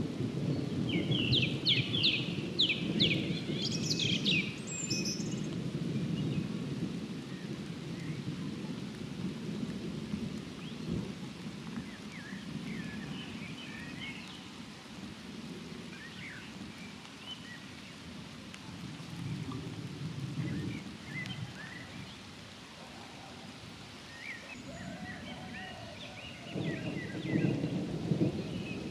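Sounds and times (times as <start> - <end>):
distant thunder rumbling: 0.0 - 13.4, 24.7 - 28.9
light rain patter: 0.0 - 28.9.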